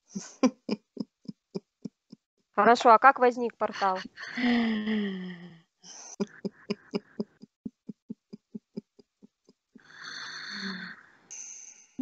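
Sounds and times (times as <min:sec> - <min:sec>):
woman's vocal pulses: 0:03.8 - 0:09.0, 0:09.8 - 0:11.0
breathy exhale: 0:09.9 - 0:11.3.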